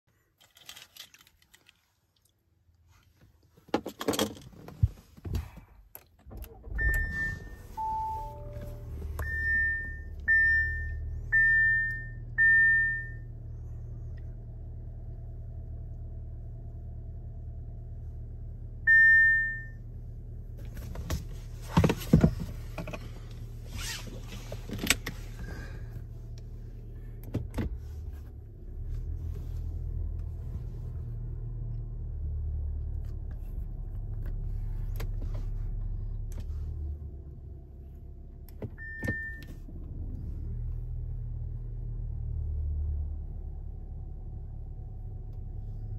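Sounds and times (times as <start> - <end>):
clicks and handling noises: 0.3 - 2.4
car engine starting and idling: 4.1 - 45.9.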